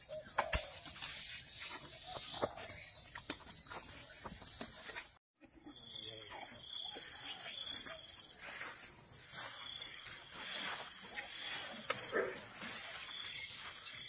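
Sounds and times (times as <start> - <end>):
insects chirring: 5.5 - 14.0.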